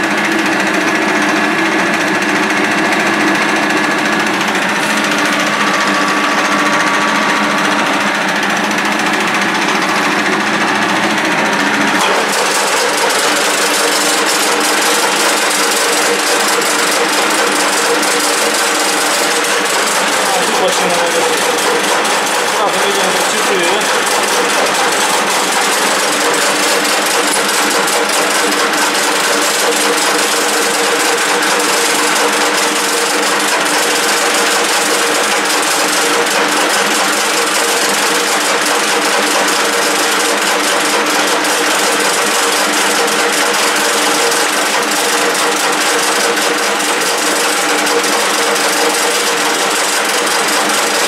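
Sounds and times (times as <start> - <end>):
lathe humming: 0.0 - 51.0.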